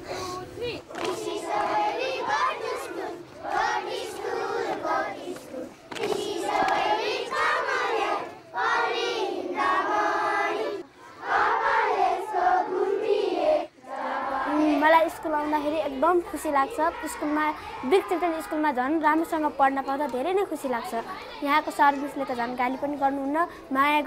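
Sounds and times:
children singing in unison: 0:00.9 - 0:15.7.

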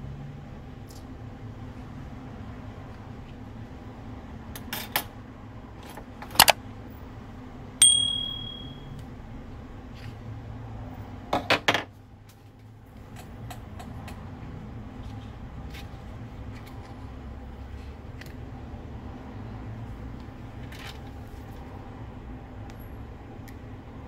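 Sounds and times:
low steady hum: 0:06.7 - 0:10.2
metallic ping: 0:07.8 - 0:08.9.

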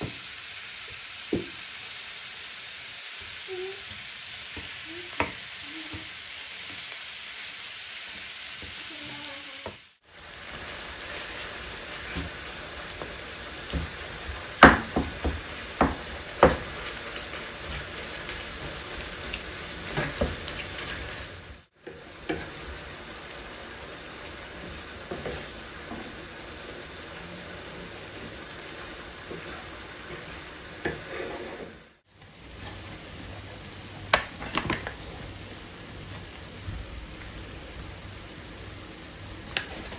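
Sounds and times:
meat and onions sizzling: 0:00.0 - 0:39.9
spatula knocking and scraping pan: 0:13.0 - 0:17.0, 0:29.2 - 0:31.7.

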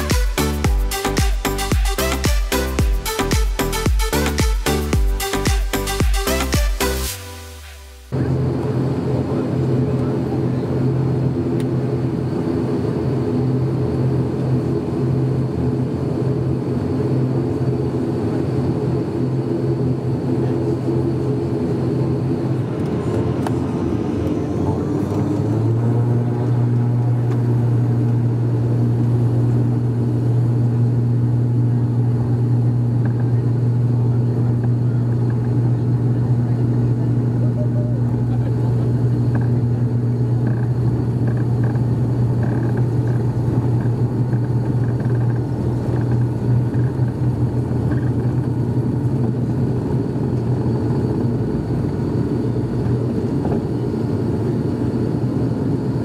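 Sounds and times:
propeller drone: 0:00.0 - 0:56.0
runway rumble: 0:08.1 - 0:17.3, 0:17.9 - 0:56.0.

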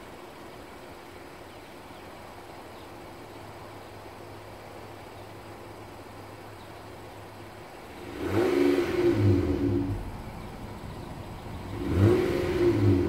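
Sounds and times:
car engine idling and revving: 0:07.0 - 0:13.0.

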